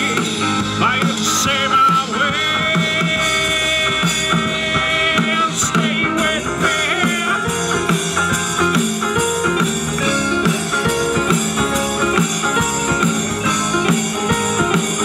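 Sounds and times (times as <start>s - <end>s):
rock band playing: 0.0s - 15.0s.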